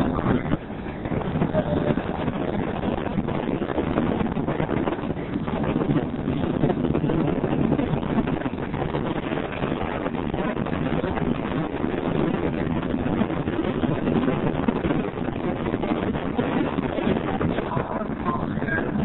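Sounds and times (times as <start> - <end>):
car driving on road: 0.0 - 19.0
wind: 0.0 - 19.0.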